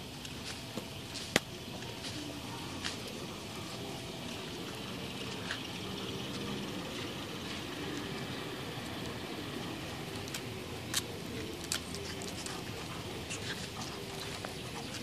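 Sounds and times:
dog claws clicking on paving: 0:10.0 - 0:15.0.

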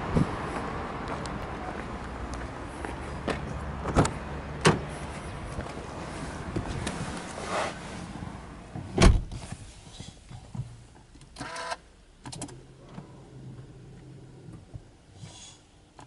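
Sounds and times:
loud thump: 0:09.0 - 0:09.3.

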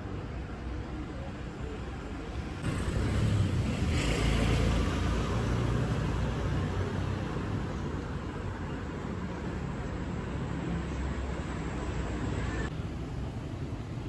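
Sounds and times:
car driving past: 0:02.6 - 0:07.0.

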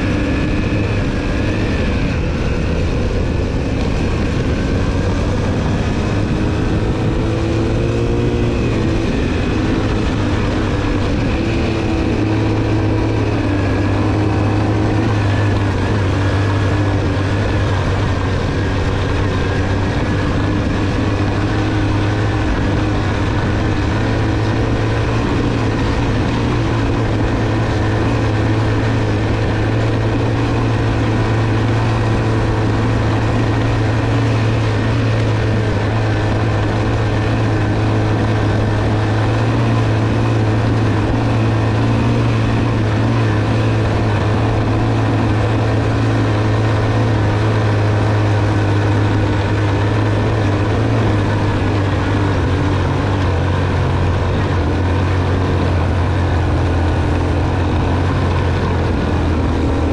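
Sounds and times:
motorcycle engine under load: 0:00.0 - 0:59.9.

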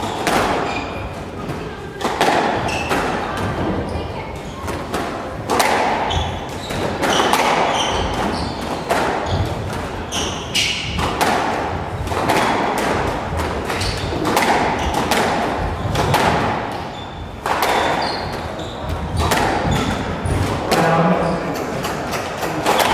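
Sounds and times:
shoes squeaking on hardwood floor: 0:00.0 - 0:01.6, 0:02.5 - 0:04.9, 0:06.0 - 0:11.1, 0:13.7 - 0:22.9
squash ball hits: 0:00.0 - 0:03.8, 0:04.6 - 0:21.0, 0:22.1 - 0:22.9.

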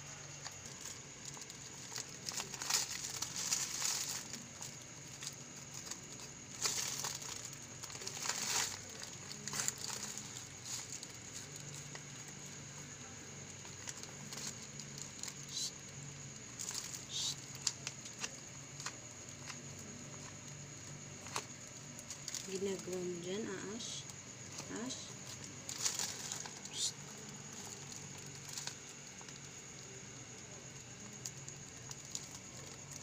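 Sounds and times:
plastic bag crinkling: 0:00.0 - 0:23.0, 0:24.4 - 0:33.0.

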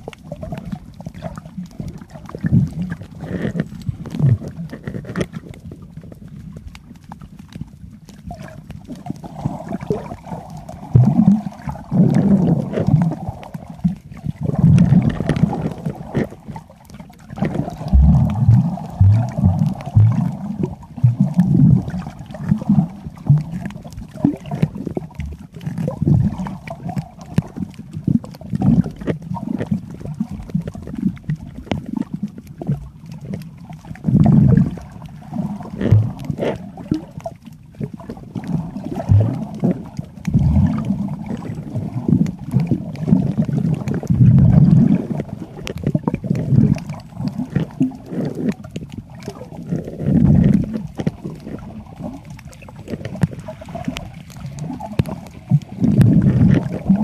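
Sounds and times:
underwater rumbling and sloshing: 0:00.0 - 0:57.0
low underwater thumps: 0:17.4 - 0:22.6, 0:35.4 - 0:37.0.

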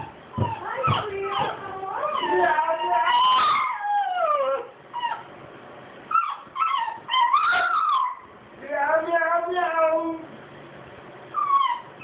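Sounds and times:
dog yips: 0:00.0 - 0:05.3, 0:06.1 - 0:08.3, 0:11.3 - 0:12.0
dogs whining and howling: 0:00.0 - 0:05.3, 0:06.1 - 0:08.4, 0:11.3 - 0:12.0.

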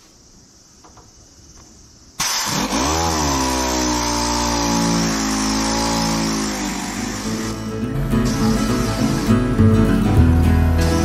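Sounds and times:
pneumatic sander running: 0:02.2 - 0:09.6.

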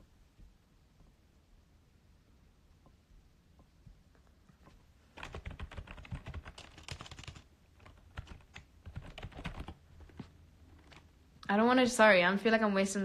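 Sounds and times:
typing on computer keyboard: 0:05.1 - 0:11.1.

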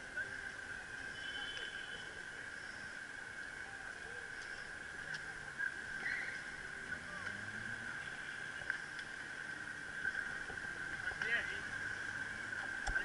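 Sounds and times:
distant voices: 0:00.0 - 0:13.0
small ticks: 0:08.6 - 0:09.2.

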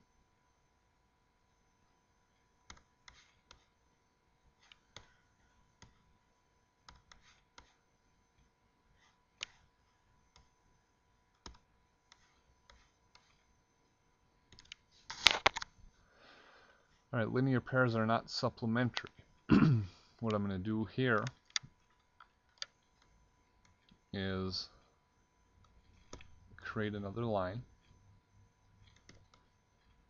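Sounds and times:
faint steady tone: 0:00.0 - 0:30.0
computer mouse clicking: 0:02.7 - 0:03.7, 0:04.6 - 0:05.2, 0:06.8 - 0:07.8, 0:08.4 - 0:09.7, 0:10.3 - 0:10.6, 0:11.3 - 0:13.4, 0:14.5 - 0:15.7, 0:21.2 - 0:24.0, 0:25.6 - 0:26.4, 0:28.8 - 0:30.0.

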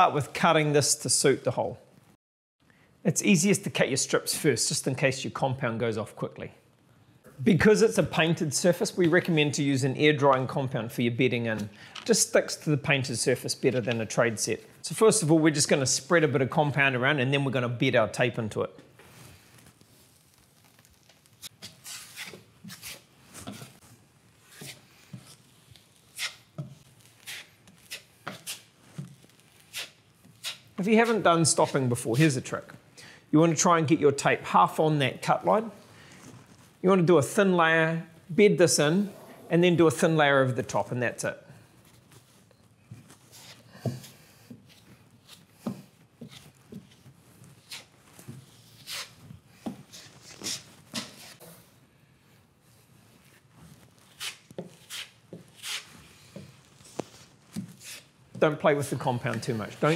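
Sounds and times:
knife scraping compound on wall: 0:21.4 - 0:23.8, 0:24.4 - 0:31.9, 0:43.2 - 0:51.6, 0:54.0 - 0:56.5, 0:57.6 - 0:58.1.

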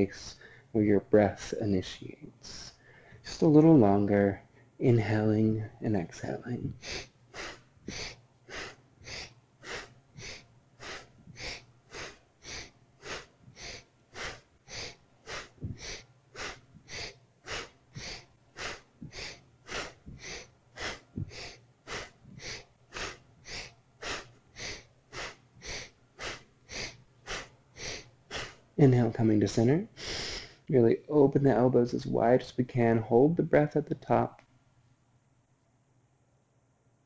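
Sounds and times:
quick breathing through the nose: 0:06.8 - 0:28.6, 0:30.0 - 0:30.7.

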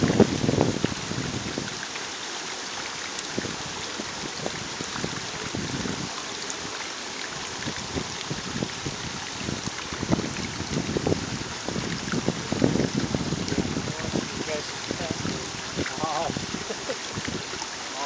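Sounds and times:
wind buffeting on microphone: 0:00.0 - 0:01.8, 0:03.2 - 0:17.9
steady rushing hiss: 0:13.2 - 0:18.0.

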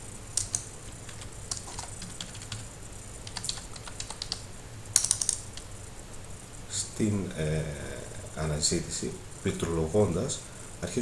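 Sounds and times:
computer keyboard keys clicking: 0:00.4 - 0:04.4, 0:05.0 - 0:05.7.

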